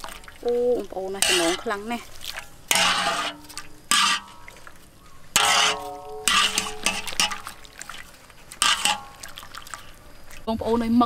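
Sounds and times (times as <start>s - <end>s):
water sloshing: 0.0s - 11.0s
metal skimmer clanking on wok: 1.1s - 4.5s, 5.3s - 7.6s, 8.6s - 9.2s.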